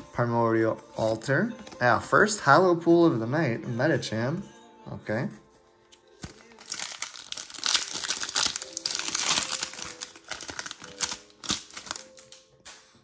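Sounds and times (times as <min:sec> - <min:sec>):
foil wrapper crinkling and tearing: 0:06.2 - 0:12.4.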